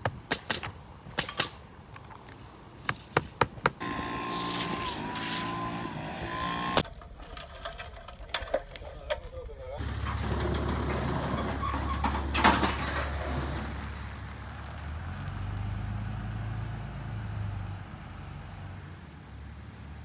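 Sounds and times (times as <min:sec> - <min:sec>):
truck engine humming: 0:01.6 - 0:12.3
loud clatter: 0:06.8 - 0:13.8.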